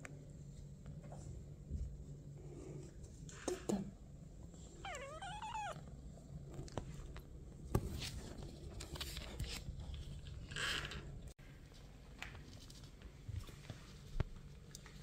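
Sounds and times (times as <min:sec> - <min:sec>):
kitten meowing: 0:04.8 - 0:05.8.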